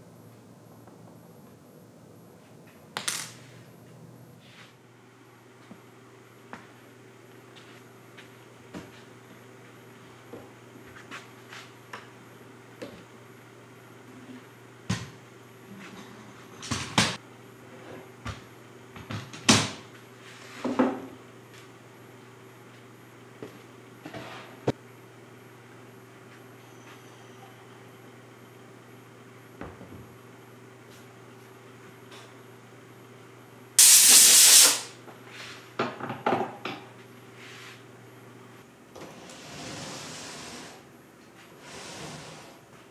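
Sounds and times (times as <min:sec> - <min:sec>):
compressed air blasts: 0:33.8 - 0:35.0.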